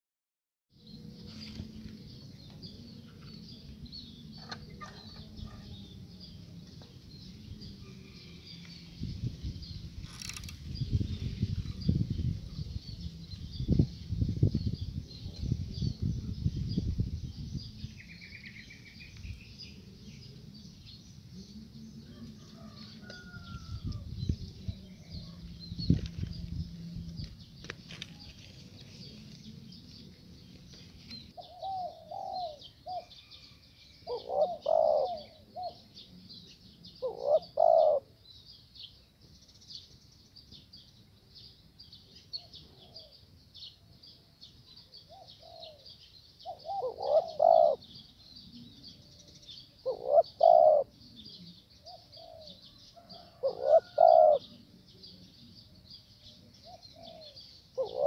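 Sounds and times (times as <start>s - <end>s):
doves cooing: 31.4s - 33.4s, 34.0s - 36.2s, 37.0s - 38.2s, 45.1s - 48.0s, 48.6s - 54.8s, 56.6s - 58.0s.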